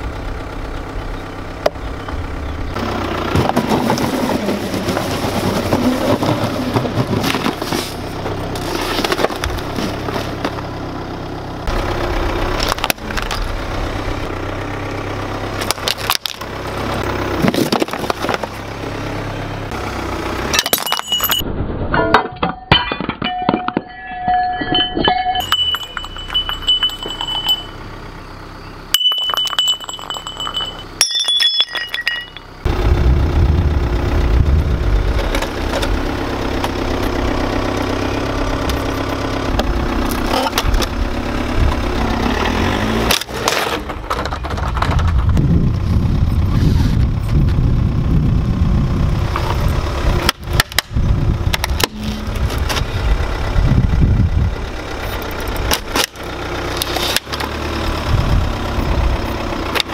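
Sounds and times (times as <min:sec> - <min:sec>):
car engine low rumble: 0:00.0 - 0:59.9
clinks: 0:20.5 - 0:28.1, 0:28.9 - 0:32.6.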